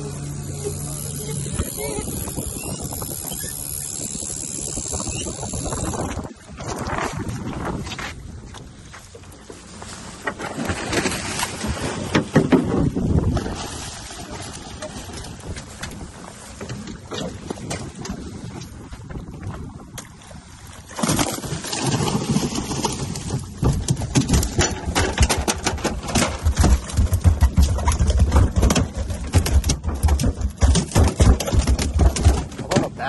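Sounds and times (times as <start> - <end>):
fish tail beating on deck: 23.4 - 32.9.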